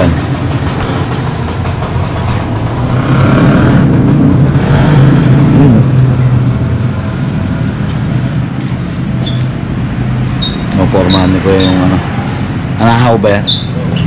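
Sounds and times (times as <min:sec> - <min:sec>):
vehicle engine passing by: 0:00.0 - 0:08.6
steady low hum: 0:00.0 - 0:14.0.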